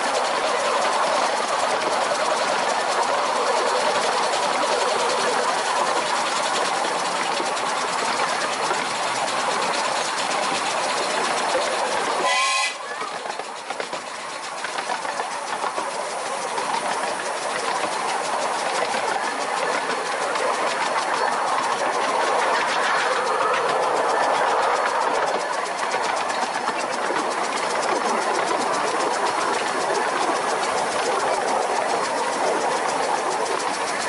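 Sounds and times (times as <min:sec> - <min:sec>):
steam locomotive running: 0:00.0 - 0:34.0
steam whistle toot: 0:12.2 - 0:12.9.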